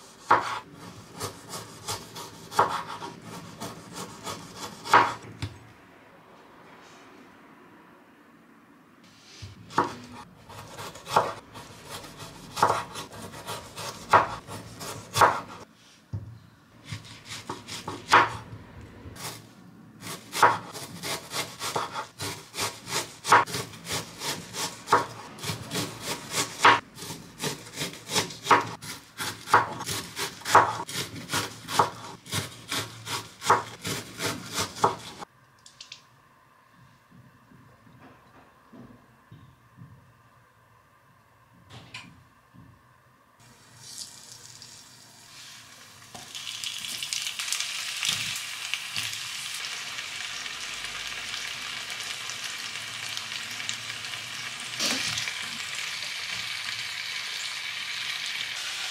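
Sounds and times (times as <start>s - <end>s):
knife chopping on wooden board: 0.2s - 5.5s, 9.7s - 15.6s, 16.8s - 18.4s, 20.0s - 35.2s.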